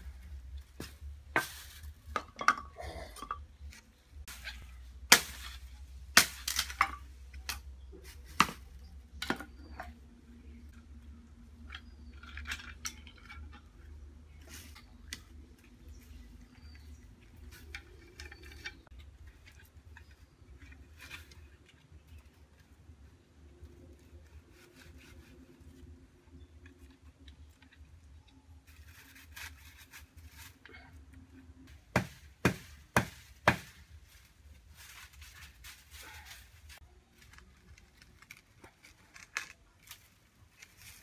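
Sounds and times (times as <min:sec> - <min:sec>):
wooden slats and tools clinking: 0:00.0 - 0:10.2, 0:11.6 - 0:21.5, 0:31.7 - 0:37.3
hand tools striking wood: 0:04.3 - 0:07.6, 0:31.7 - 0:33.9.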